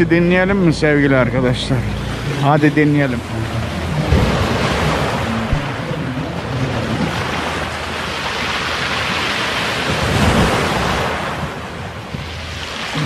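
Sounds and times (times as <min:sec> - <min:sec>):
waves breaking on pebble beach: 0:06.8 - 0:13.0.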